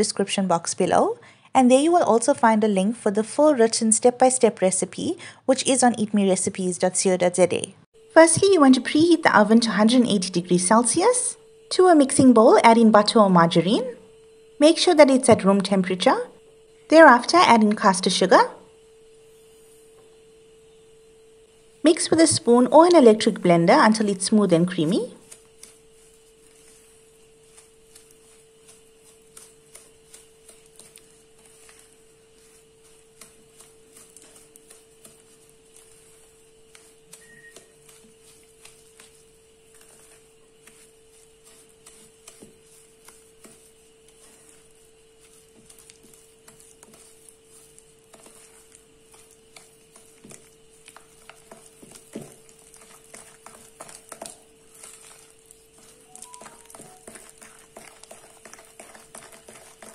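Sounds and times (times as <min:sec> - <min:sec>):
faint steady hum: 0:00.0 - 0:59.9
wooden spoon scraping glass bowl: 0:23.9 - 0:59.9.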